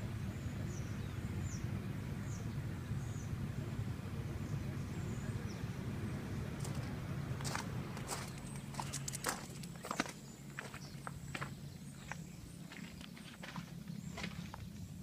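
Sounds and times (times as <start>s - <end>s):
birds chirping: 0.0s - 15.0s
engine idling: 0.0s - 15.0s
footsteps crunching on gravel: 6.6s - 14.9s.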